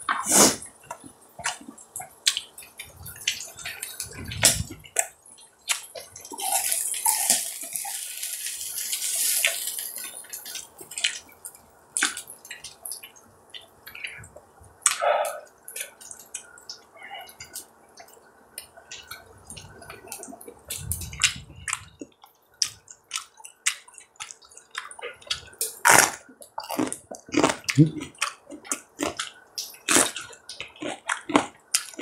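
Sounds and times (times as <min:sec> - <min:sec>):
wet chewing: 0:00.1 - 0:32.0
meat sizzling hiss: 0:06.5 - 0:10.0.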